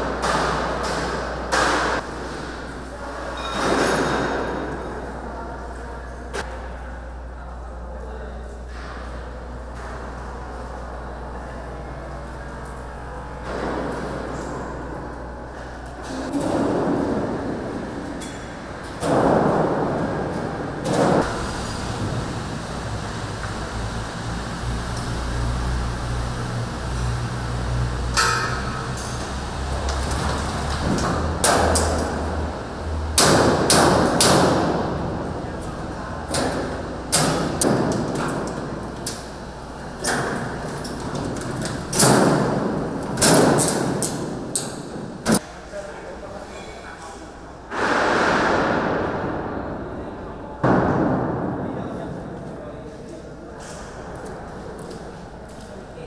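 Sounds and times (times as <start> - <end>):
steady low hum: 0.0 - 56.0
heavy thuds echoing: 47.7 - 52.4.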